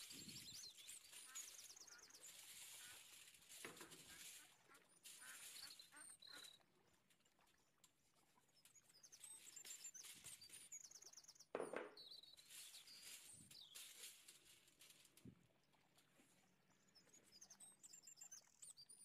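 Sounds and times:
faint birds chirping: 0:00.0 - 0:19.0.

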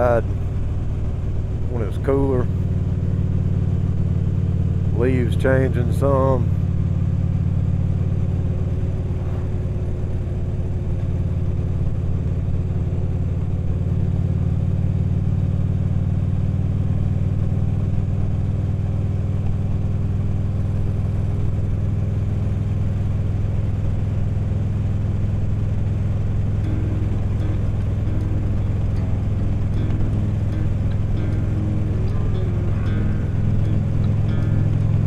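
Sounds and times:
motorcycle engine cruising: 0:00.0 - 0:35.0.

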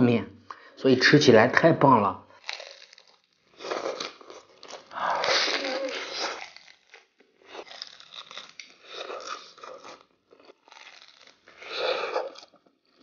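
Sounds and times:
crunching and chewing crisp crust: 0:02.4 - 0:13.0.

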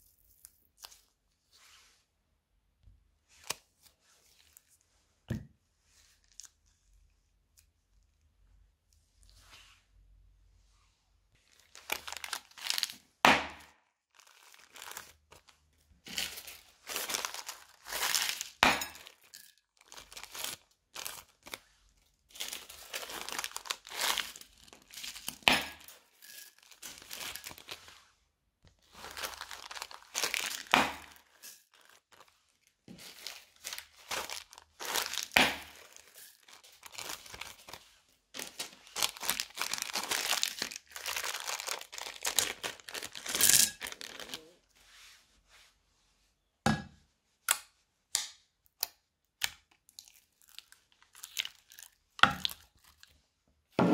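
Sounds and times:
plastic bags crinkling: 0:11.4 - 0:13.1, 0:14.1 - 0:28.0, 0:28.8 - 0:44.6, 0:49.9 - 0:53.1.

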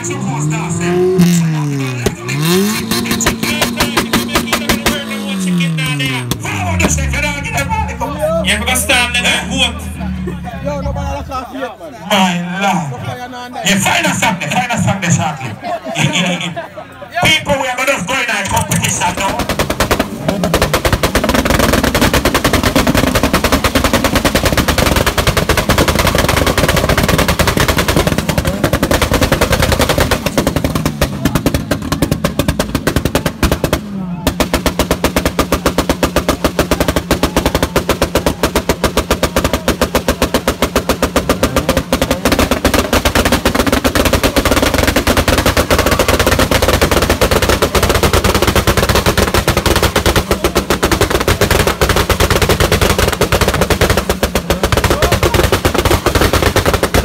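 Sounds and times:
car engine on rev limiter: 0:00.0 - 0:11.4, 0:19.2 - 0:51.8
exhaust crackling: 0:00.0 - 0:57.0.

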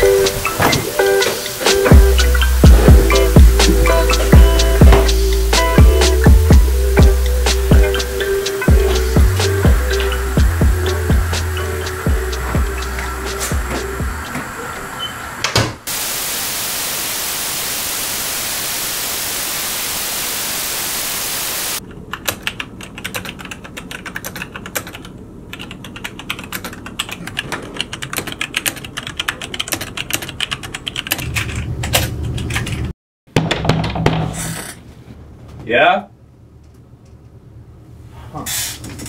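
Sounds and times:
static hiss: 0:00.0 - 0:14.8, 0:15.9 - 0:21.8
fast typing on keyboard: 0:22.1 - 0:32.9.

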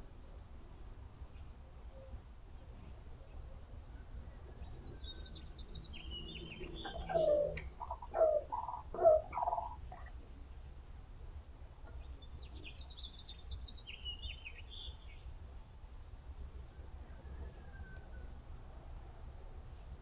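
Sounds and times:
small birds chirping: 0:04.6 - 0:10.2, 0:11.9 - 0:15.3
rooster crowing: 0:16.7 - 0:18.5.

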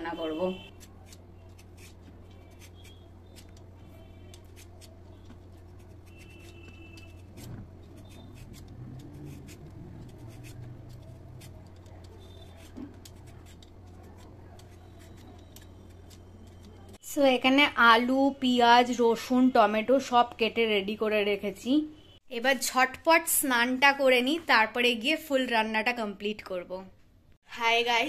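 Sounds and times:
peeler scraping potato skin: 0:00.7 - 0:17.0.

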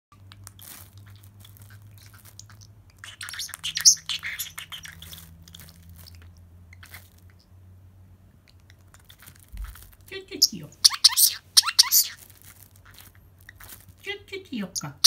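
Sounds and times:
cling film crinkling: 0:00.1 - 0:07.4, 0:08.8 - 0:10.2, 0:10.8 - 0:14.1.

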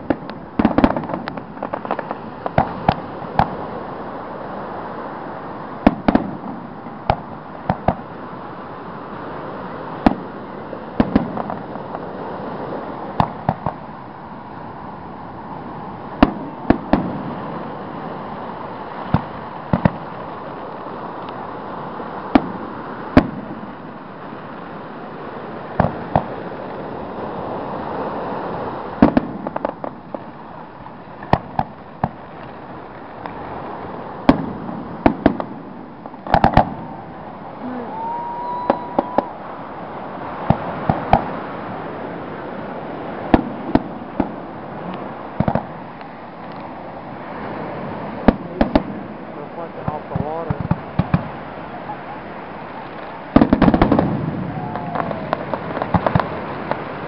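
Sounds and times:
fireworks bursting with sharp bangs: 0:00.0 - 0:03.9, 0:05.8 - 0:08.4, 0:09.3 - 0:14.0, 0:14.9 - 0:57.0.

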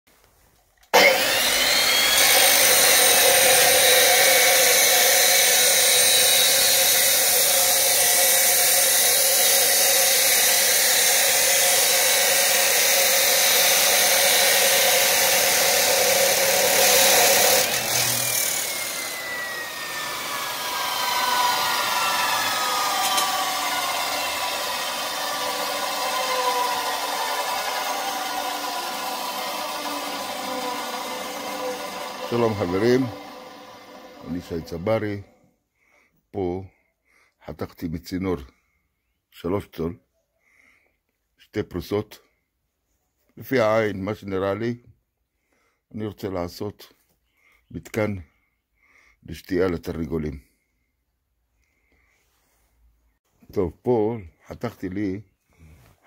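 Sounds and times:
cut-off saw grinding steel pipe: 0:01.0 - 0:35.2.

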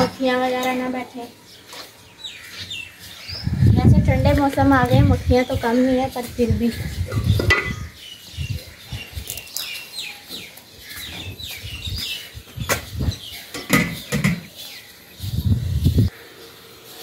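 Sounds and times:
small birds chirping: 0:00.0 - 0:17.0
wind on microphone: 0:03.2 - 0:09.4, 0:11.1 - 0:14.4, 0:15.2 - 0:16.1.

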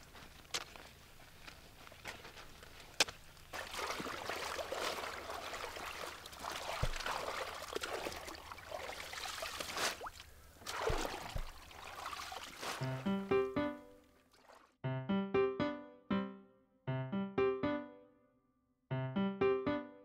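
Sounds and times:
water trickling and splashing: 0:02.7 - 0:13.1, 0:14.2 - 0:14.8.

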